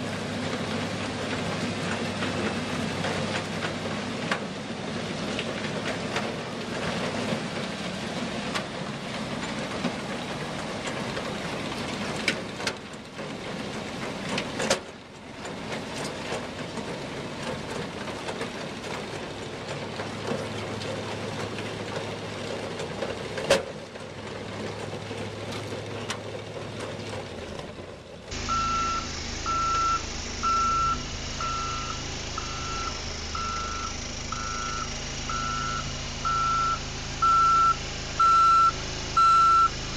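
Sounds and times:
tracked vehicle engine and machinery: 0.0 - 39.9
backup alarm beeping: 28.4 - 39.9.

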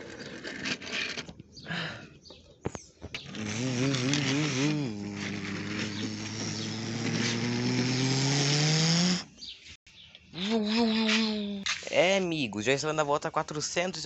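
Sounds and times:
person imitating car engine: 3.3 - 9.3, 10.3 - 11.6.

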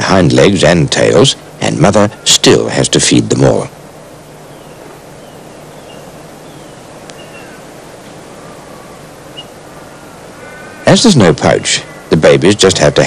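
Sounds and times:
steady hiss: 0.0 - 13.0
small animal squeaking: 9.3 - 9.6.

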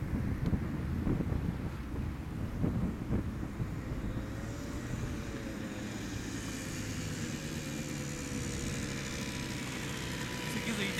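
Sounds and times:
wind on microphone: 0.0 - 5.8
distant engine drone: 0.0 - 10.9.

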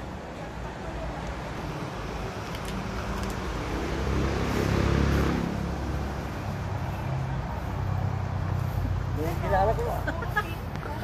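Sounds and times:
vehicle engine passing by: 1.8 - 10.4.

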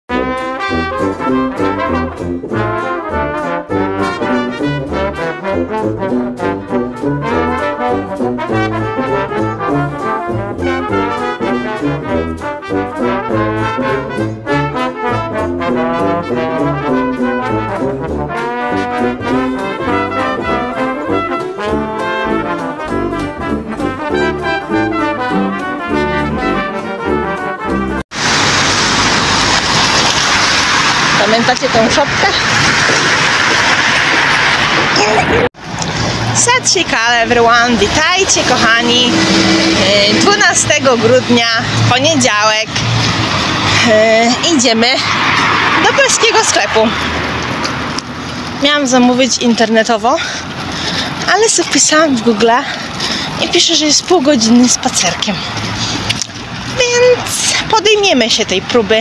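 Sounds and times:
street ambience: 0.0 - 59.0
intro music: 0.1 - 29.4, 38.2 - 42.2.

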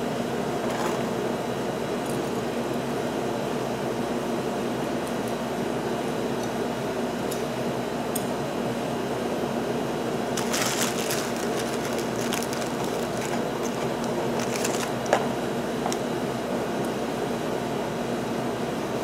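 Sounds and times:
steady hum: 9.4 - 17.6.

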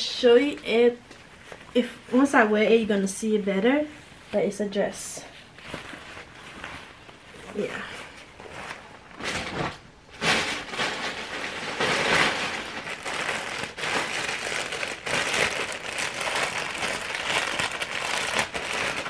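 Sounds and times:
clothing and packaging rustling: 4.3 - 19.0.

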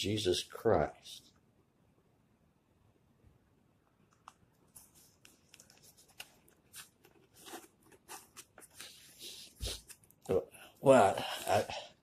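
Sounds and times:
book pages rustling and crackling: 4.5 - 10.3.

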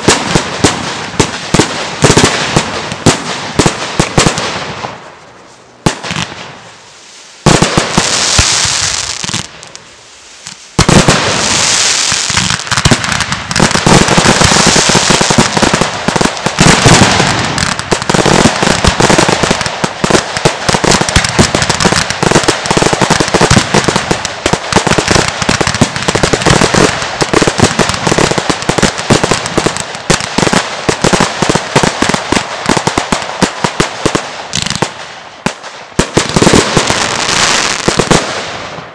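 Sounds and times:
fireworks bangs and crackling: 0.0 - 38.9
firework hiss: 5.4 - 31.7.

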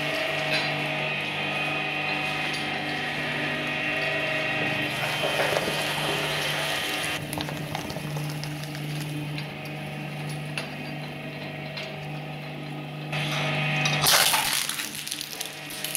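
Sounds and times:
shredder chewing paper: 0.0 - 9.7, 14.0 - 15.9
shredder motor hum: 0.0 - 15.9.

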